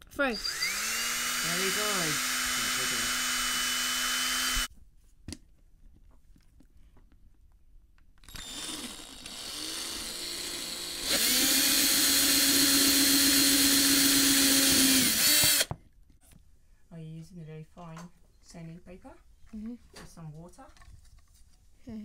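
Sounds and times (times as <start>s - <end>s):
small electric drill boring: 0.2s - 4.7s, 8.2s - 15.7s.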